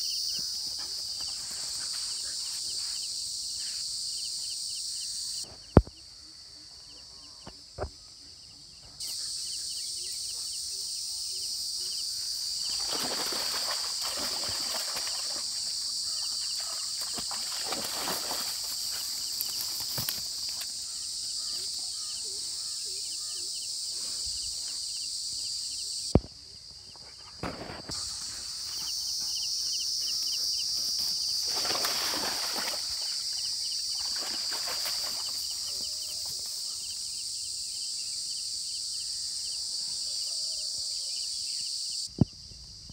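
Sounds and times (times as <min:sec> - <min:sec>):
faint insect chirping: 0:00.0 - 0:42.9
insects droning: 0:00.0 - 0:42.9
rustling through grass and brush: 0:17.1 - 0:20.7.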